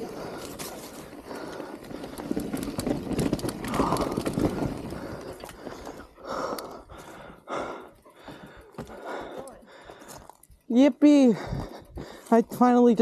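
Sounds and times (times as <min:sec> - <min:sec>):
rider breathing heavily: 0:00.0 - 0:12.6
mountain bike rattling on dirt trail: 0:00.0 - 0:13.0.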